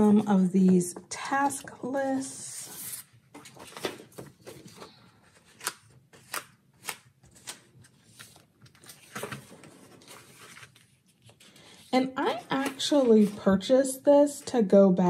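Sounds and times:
paper rustling: 2.8 - 13.6.

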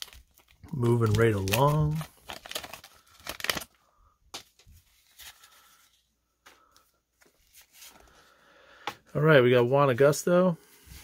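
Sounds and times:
paper wrapper crinkling and tearing: 0.0 - 6.0.

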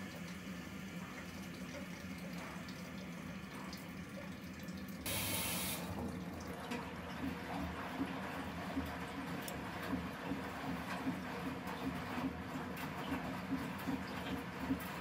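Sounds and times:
washing machine humming: 0.0 - 15.0
water rushing into drum: 5.1 - 6.5.

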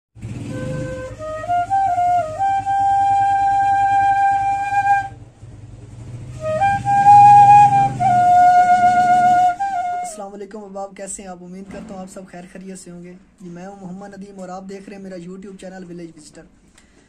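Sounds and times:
flute playing slow melody: 0.2 - 5.3, 6.2 - 10.2.

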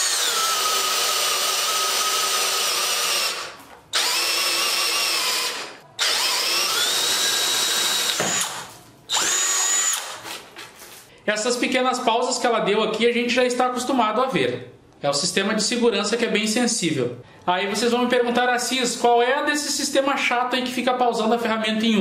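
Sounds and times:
cordless drill boring into wood: 0.0 - 10.2.

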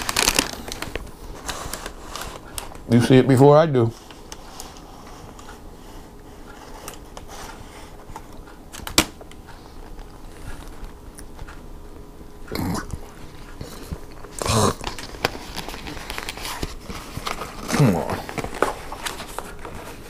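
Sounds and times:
paper and cardboard rustling: 0.0 - 8.5, 13.1 - 20.0.

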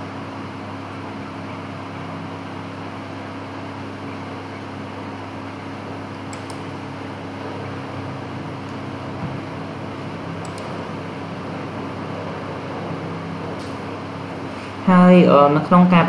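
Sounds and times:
low background hum: 0.0 - 16.0
mouse clicks: 6.3 - 6.7, 10.4 - 10.7.

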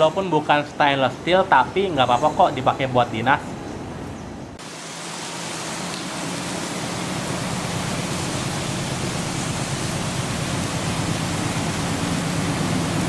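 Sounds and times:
broad hiss: 4.6 - 13.0
diesel engines humming: 5.5 - 13.0.

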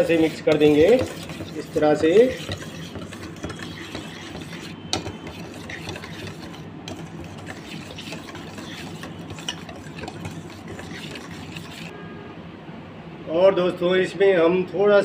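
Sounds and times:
whisk clattering in metal bowl: 0.0 - 11.9.

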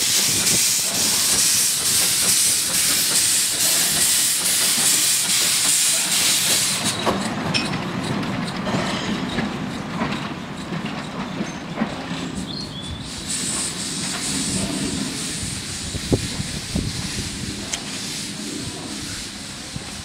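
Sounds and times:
steam hissing: 0.0 - 7.3, 12.1 - 20.0
train wheels rumbling: 0.0 - 20.0
wheels clicking over rail joints: 0.1 - 12.6.

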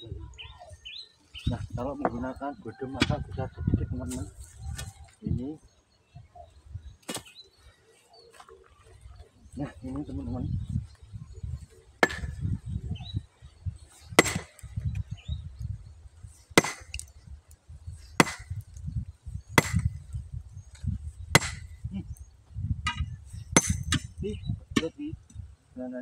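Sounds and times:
sledgehammer striking stone: 12.0 - 12.4, 14.2 - 14.6, 16.6 - 17.0, 18.2 - 18.6, 19.6 - 19.9, 21.3 - 21.7, 23.6 - 24.1.

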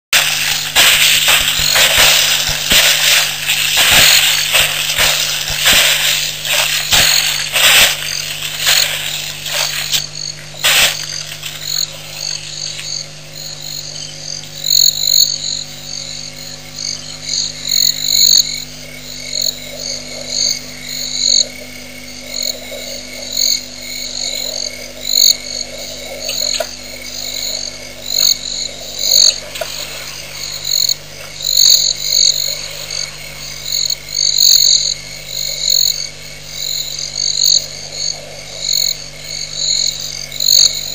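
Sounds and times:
loud bursts of noise: 0.1 - 12.5
steady low hum: 0.1 - 40.9
frogs chirping: 0.2 - 40.9.

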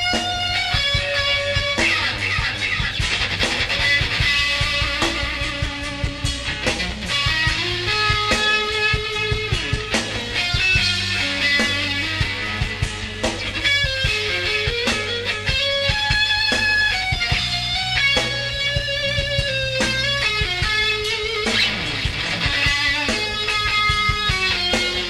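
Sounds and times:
bass line: 0.0 - 25.0
drums: 0.0 - 25.0
electric guitar lead notes: 0.0 - 25.0.

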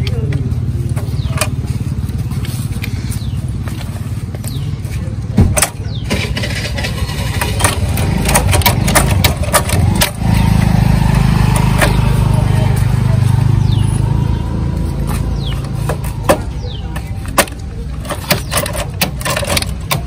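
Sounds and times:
small engine running: 5.9 - 17.2.

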